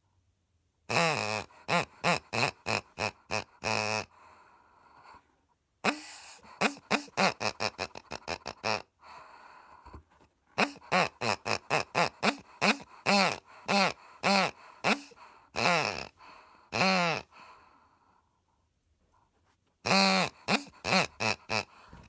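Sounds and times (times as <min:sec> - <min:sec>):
squeaky pig toy grunting: 0:00.9 - 0:05.2, 0:05.8 - 0:09.2, 0:10.6 - 0:17.6, 0:19.8 - 0:22.0.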